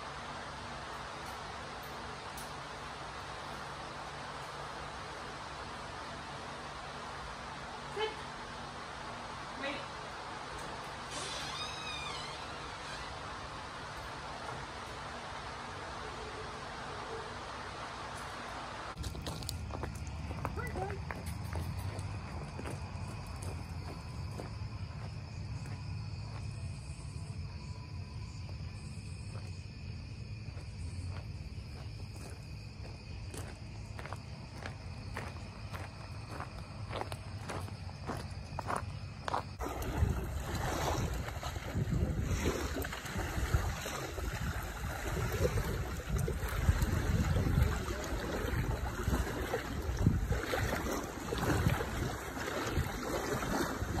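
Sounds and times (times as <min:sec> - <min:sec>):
crickets chirping: 0:00.0 - 0:54.0
low constant hum: 0:00.0 - 0:54.0
footsteps on gravel: 0:19.0 - 0:25.8, 0:31.2 - 0:39.6
small waves lapping on sand: 0:39.6 - 0:54.0
wind buffeting microphone: 0:39.6 - 0:54.0.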